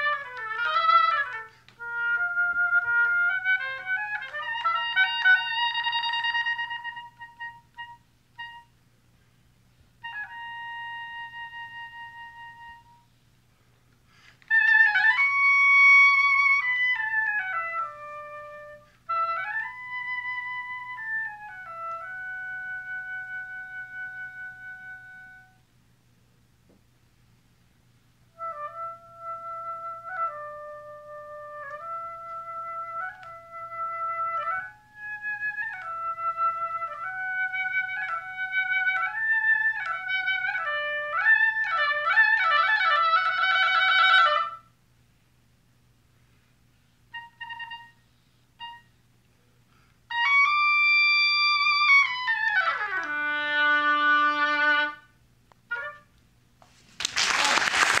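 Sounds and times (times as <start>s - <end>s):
solo oboe playing: 0.0s - 8.8s, 10.0s - 13.2s, 14.2s - 25.7s, 28.3s - 44.7s, 47.1s - 49.1s, 50.1s - 56.2s
audience applause: 56.9s - 58.0s.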